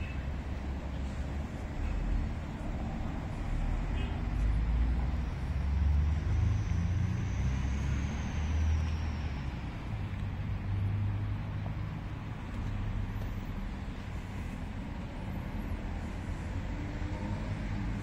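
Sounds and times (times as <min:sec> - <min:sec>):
low rumble of city traffic: 0:00.0 - 0:18.0.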